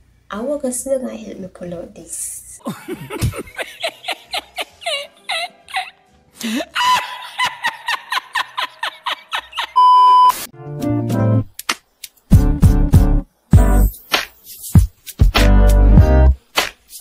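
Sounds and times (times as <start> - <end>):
man laughing: 2.6 - 9.8
test-tone beep: 9.8 - 10.4.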